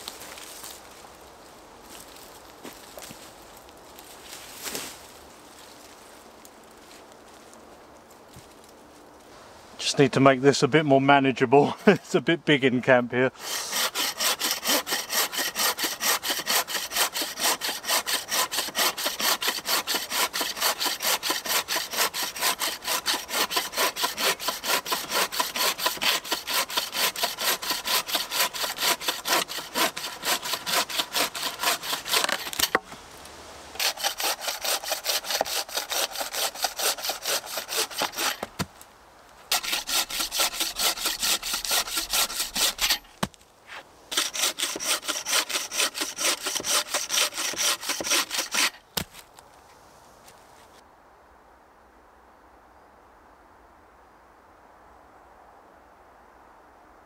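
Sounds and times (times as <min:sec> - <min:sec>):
bow saw cutting branch: 0:13.4 - 0:33.0, 0:33.7 - 0:38.9, 0:39.5 - 0:49.3.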